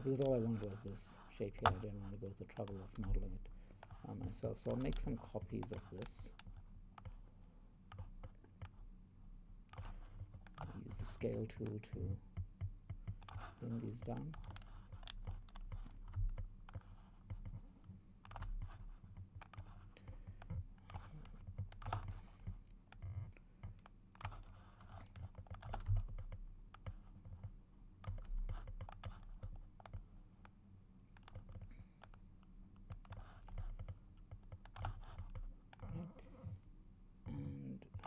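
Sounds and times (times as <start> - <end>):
low electrical hum: 0.0 - 38.0
keyboard and mouse clicking: 1.6 - 1.8, 4.6 - 7.2, 9.7 - 11.8, 12.4 - 17.6, 18.2 - 22.2, 22.9 - 30.6, 31.2 - 32.2, 32.8 - 35.9.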